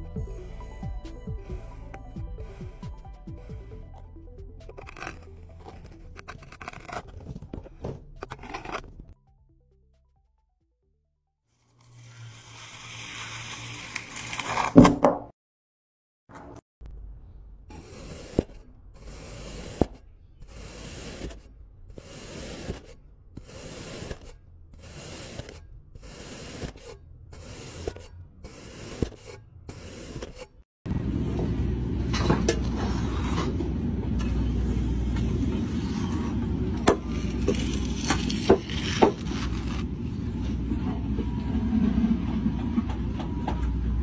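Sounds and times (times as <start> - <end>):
low rumble: 0.0 - 8.3, 30.9 - 44.0
sand being scraped: 0.0 - 9.2, 11.6 - 14.8, 17.7 - 30.6, 35.2 - 40.4.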